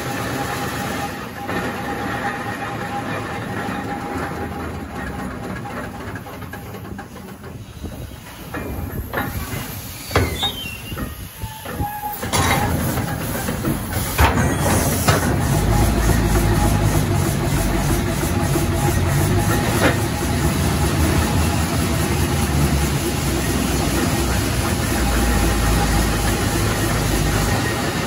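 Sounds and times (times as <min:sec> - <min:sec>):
steam engine and gearing running: 0:00.0 - 0:28.0
steam hissing: 0:06.1 - 0:28.0.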